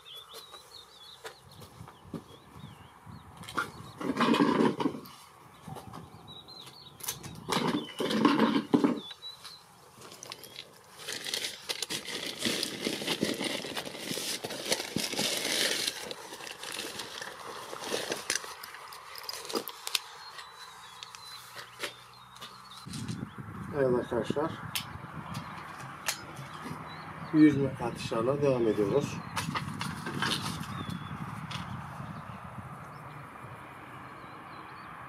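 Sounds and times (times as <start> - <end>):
wind buffeting microphone: 1.4 - 8.3, 22.8 - 35.0
rustling: 7.6 - 23.2.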